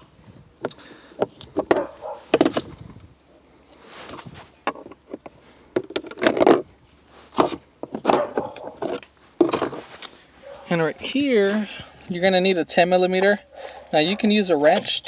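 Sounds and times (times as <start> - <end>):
plastic scraping: 0.6 - 3.0, 4.0 - 10.2.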